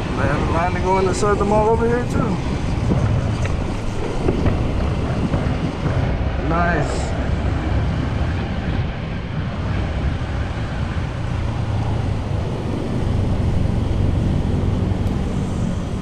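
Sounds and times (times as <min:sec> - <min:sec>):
motorcycle engine rumble: 0:00.0 - 0:16.0
wind buffeting microphone: 0:00.0 - 0:16.0.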